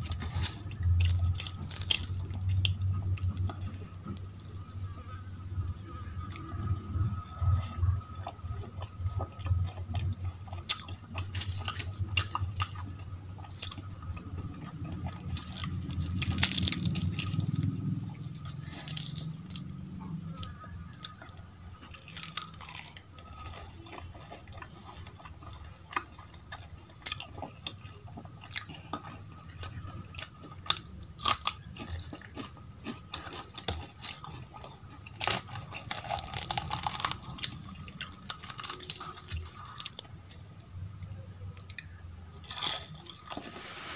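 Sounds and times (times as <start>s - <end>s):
fried crust crackling torn open: 0.0s - 4.0s, 15.4s - 17.7s, 35.1s - 40.0s
chewing and crunching: 0.0s - 43.9s.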